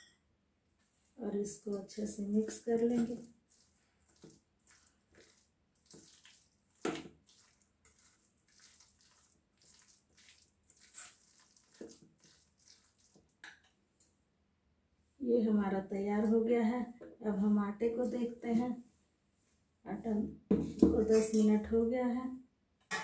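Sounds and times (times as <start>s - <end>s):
spoon mixing wet filling: 0.8s - 14.1s, 20.9s - 21.6s
knock: 20.5s - 21.0s.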